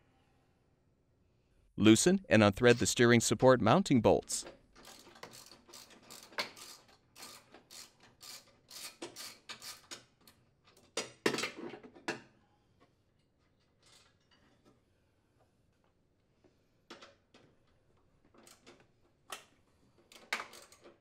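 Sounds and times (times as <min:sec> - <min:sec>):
ratchet clicking: 0:04.8 - 0:09.9.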